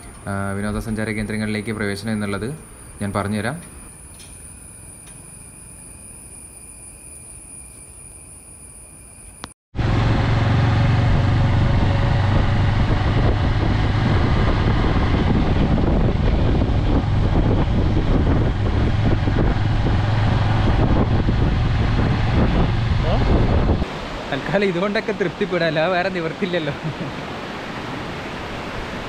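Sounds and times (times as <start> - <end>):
motorcycle engine running: 9.8 - 23.8
wind rush on microphone: 9.8 - 24.7.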